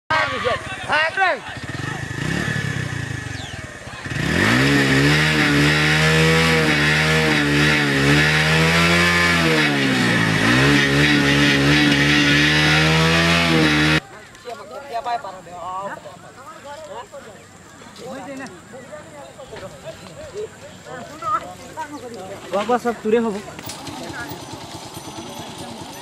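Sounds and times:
small engine running: 0.5 - 14.0, 23.4 - 26.0.

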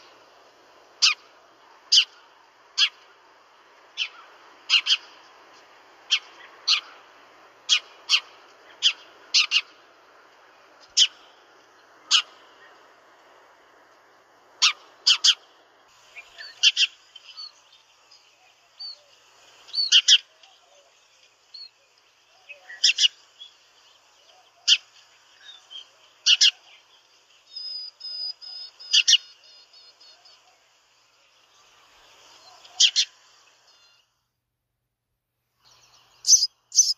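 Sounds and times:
sparrow chirping: 12.0 - 12.4, 16.0 - 30.4, 35.7 - 36.9.

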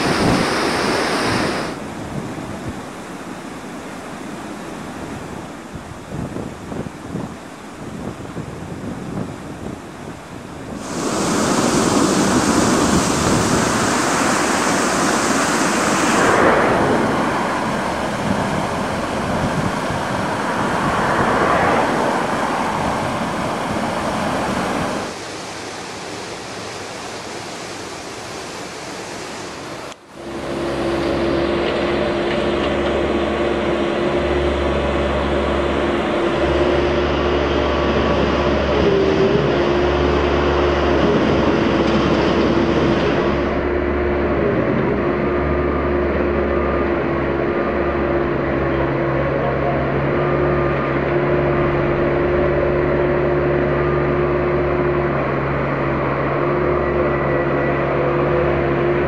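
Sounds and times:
wind on microphone: 0.0 - 25.2, 30.2 - 59.0
water rushing over a weir: 0.0 - 59.0
dredger engine droning: 9.9 - 25.1, 30.2 - 59.0.

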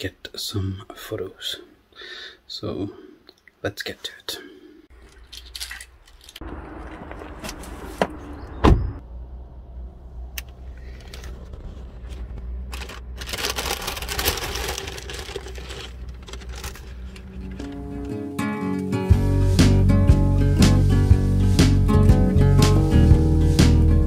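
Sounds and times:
low car rumble: 6.4 - 15.0
car door shutting: 7.1 - 9.0
paper bag rustling: 10.8 - 18.2.

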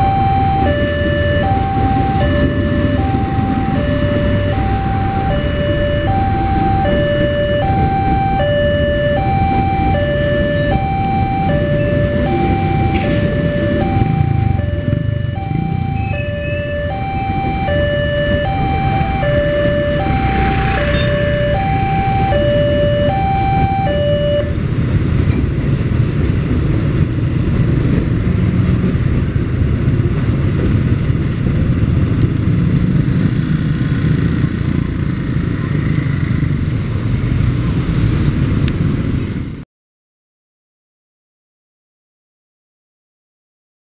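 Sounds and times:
two-tone crossing warning bell: 0.0 - 24.7
road traffic: 0.0 - 39.6.

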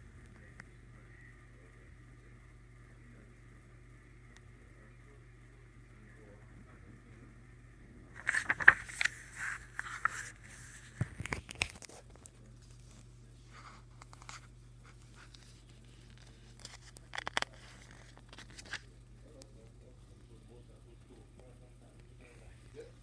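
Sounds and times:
paper pages rustling: 8.2 - 18.9.

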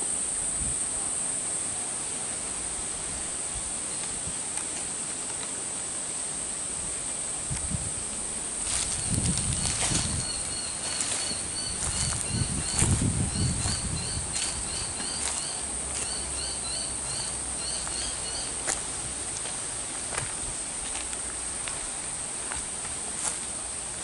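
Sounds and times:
high-pitched insect drone: 0.0 - 24.0
brush rustling: 7.4 - 24.0
footsteps: 8.6 - 16.3, 17.8 - 23.5.

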